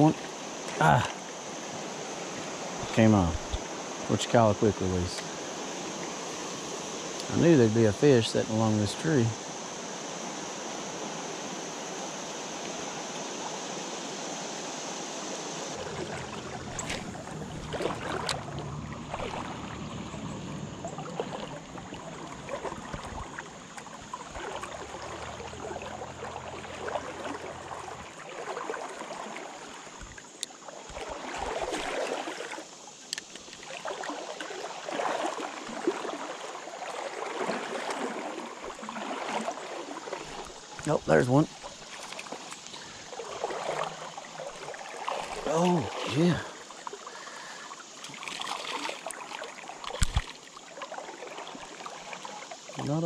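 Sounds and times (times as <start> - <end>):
river water flowing: 0.0 - 53.0.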